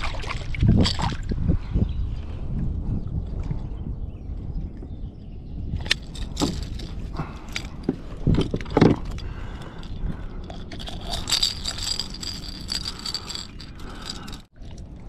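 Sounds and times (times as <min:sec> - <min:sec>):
fishing gear clattering: 0:05.8 - 0:14.5.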